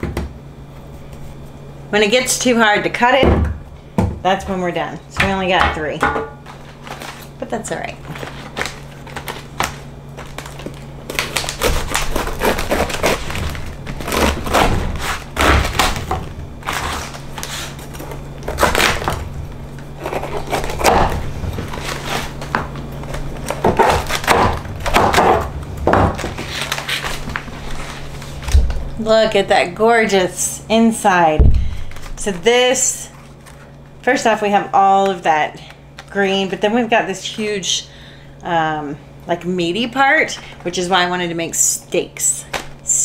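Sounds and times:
steady low hum: 0.0s - 43.0s
knife cutting vegetable: 11.6s - 13.4s, 20.0s - 21.2s.

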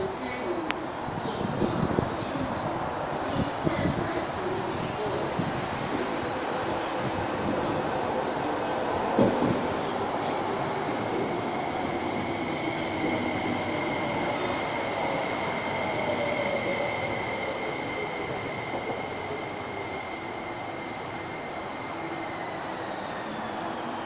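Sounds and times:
electric train braking to a stop: 8.3s - 24.0s.

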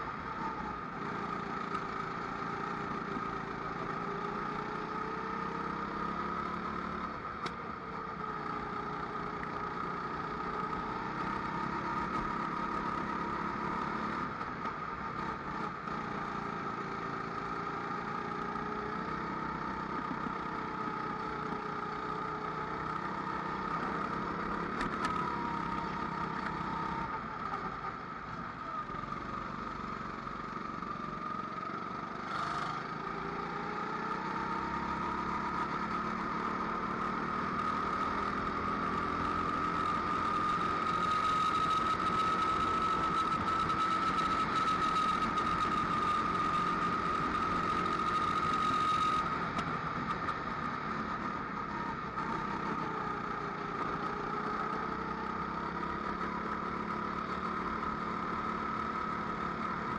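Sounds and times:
kart engine revving: 31.0s - 59.6s.

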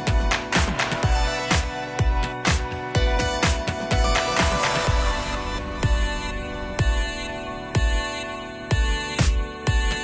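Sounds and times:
bass kick drum: 3.0s - 10.0s
sustained synth tones: 4.9s - 9.0s.

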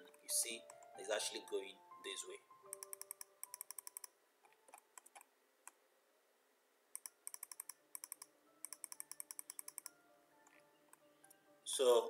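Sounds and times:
computer mouse clicking: 2.7s - 5.8s, 6.9s - 11.0s.

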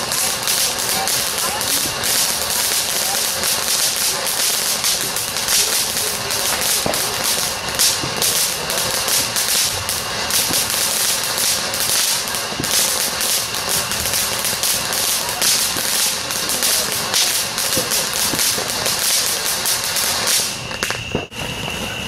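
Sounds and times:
firework crackling and popping: 0.0s - 22.0s
firework hissing: 0.0s - 22.0s.

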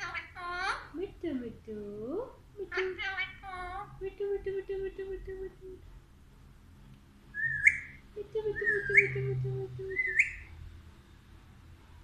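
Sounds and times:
parakeet whistling: 7.3s - 8.0s, 8.6s - 10.6s.

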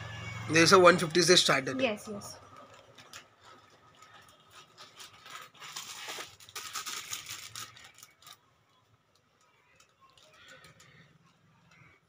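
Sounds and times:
plastic packets crinkling: 2.4s - 12.0s.

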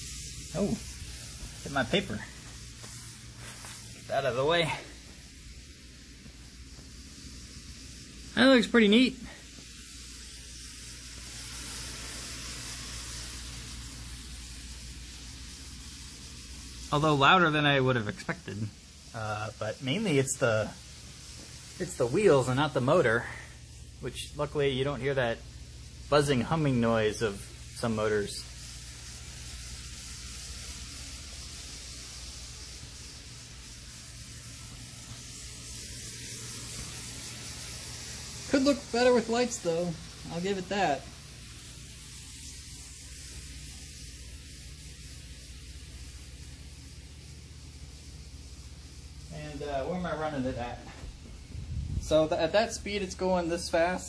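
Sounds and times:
model train wheel hiss: 0.0s - 54.0s.

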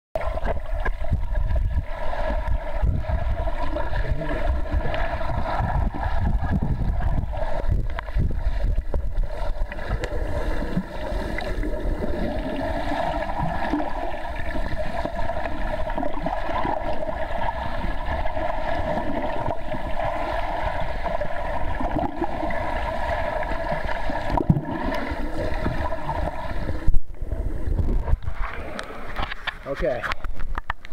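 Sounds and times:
swimmer's strokes churning water: 0.2s - 29.3s
muffled underwater water rush: 0.2s - 30.9s.

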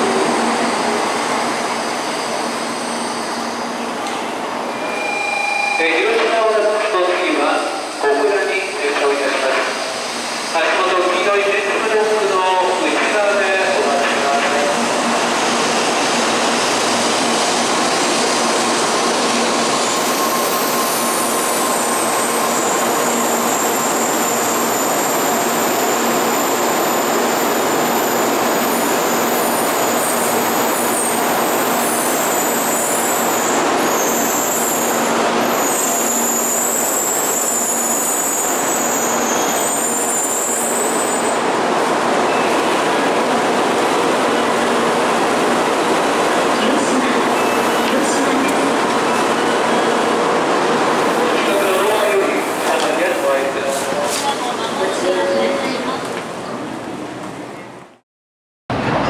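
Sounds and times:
high-pitched brake squeal: 4.8s - 6.0s, 19.7s - 27.5s, 32.2s - 41.4s, 47.3s - 48.0s.

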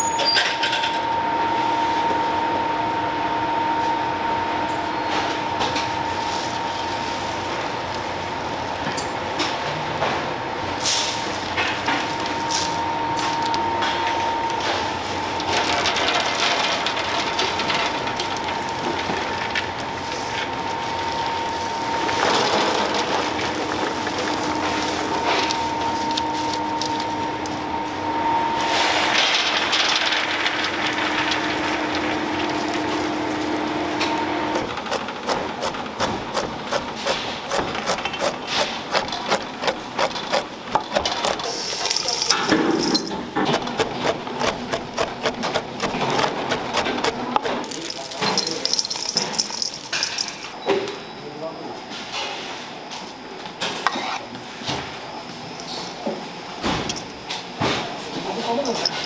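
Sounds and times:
steady background hum: 0.0s - 59.0s
nuts rattling off metal trays: 15.4s - 19.4s, 29.1s - 32.7s, 39.1s - 43.3s, 45.8s - 50.5s.

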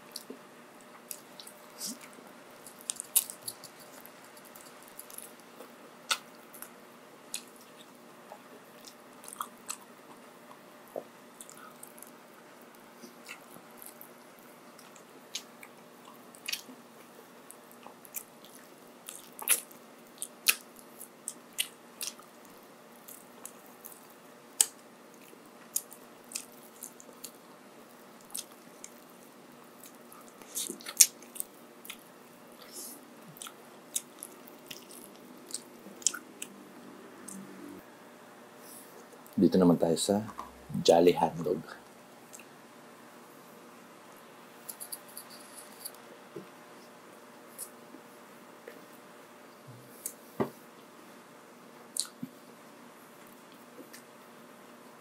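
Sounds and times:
close chewing and crunching: 0.0s - 36.6s, 51.9s - 52.4s.

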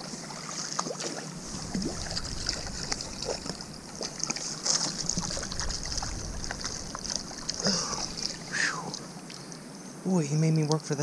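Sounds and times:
fish splashing: 0.0s - 9.3s
creek water running: 0.0s - 11.0s.

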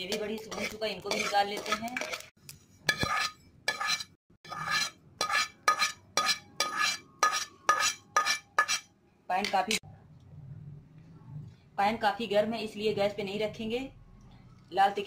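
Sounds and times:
metal spoon scraping a pan: 0.0s - 9.8s.

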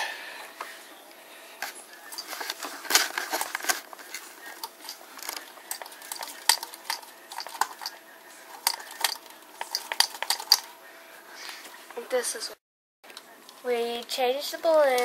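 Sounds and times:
metal cans clinking: 2.1s - 10.7s.

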